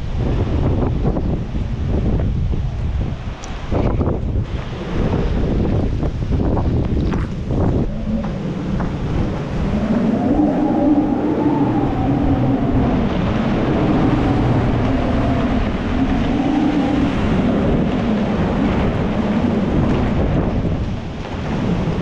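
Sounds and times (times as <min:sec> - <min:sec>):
wind gusting and howling: 0:00.0 - 0:22.0
wind rumble on microphone: 0:00.0 - 0:22.0.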